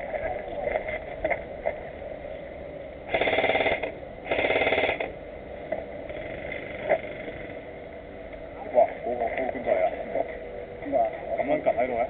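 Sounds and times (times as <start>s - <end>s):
airsoft gun full-auto bursts: 3.1s - 5.1s.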